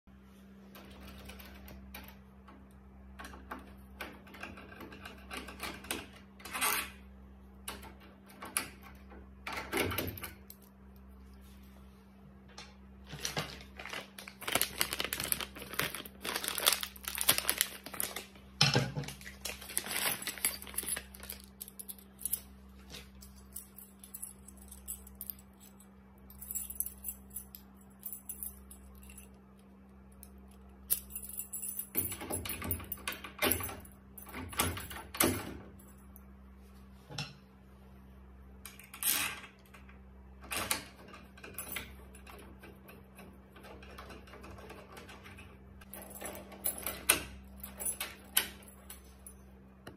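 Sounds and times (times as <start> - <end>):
steady low hum: 0.1 - 49.9
keys jangling: 19.5 - 29.6, 30.2 - 35.1, 45.8 - 49.4.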